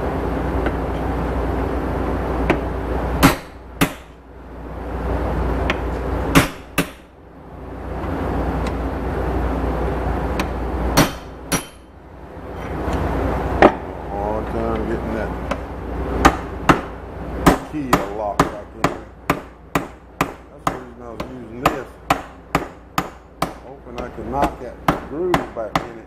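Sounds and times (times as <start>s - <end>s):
hammer striking steel: 2.5s - 4.2s, 5.7s - 7.1s, 10.4s - 11.9s, 16.2s - 26.0s.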